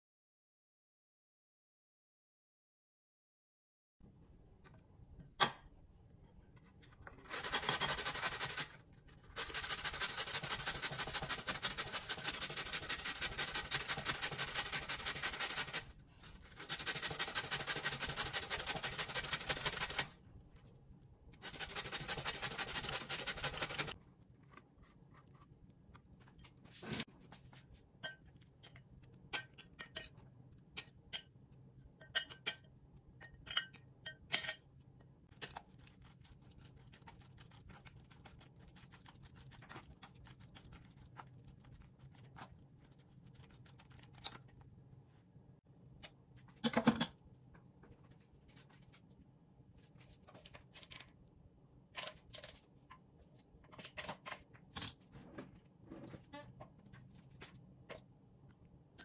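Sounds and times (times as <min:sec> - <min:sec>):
spoon scraping a metal strainer: 0:07.2 - 0:08.7.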